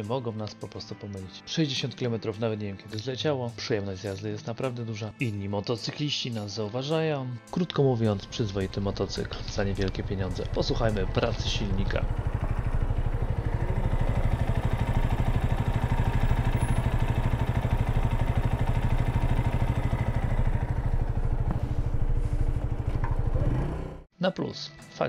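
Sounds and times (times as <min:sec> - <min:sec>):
motorcycle engine idling: 0:08.2 - 0:24.1.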